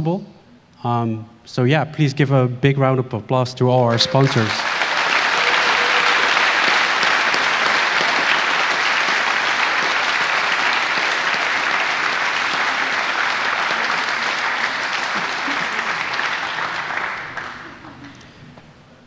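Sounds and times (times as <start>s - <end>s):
large crowd applauding: 3.9s - 18.5s.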